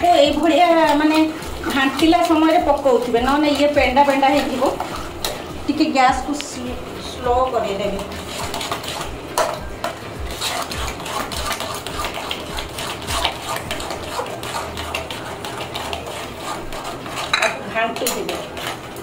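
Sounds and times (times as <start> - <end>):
ladle scraping metal pan: 7.6 - 19.0.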